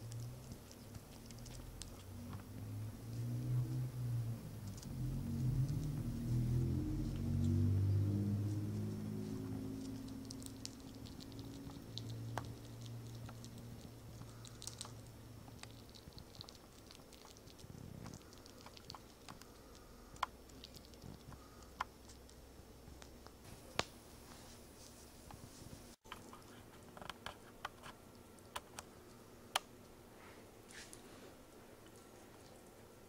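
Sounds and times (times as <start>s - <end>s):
squirrel claws scratching and clicking: 0.0s - 3.3s, 4.6s - 6.4s, 8.4s - 23.9s, 26.1s - 28.9s.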